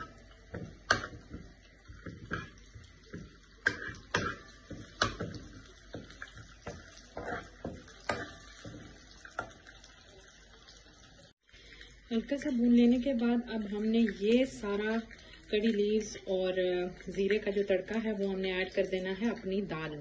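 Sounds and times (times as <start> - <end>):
metal spoon scraping a pan: 0.0 - 9.0
spices frying in oil: 0.0 - 20.0.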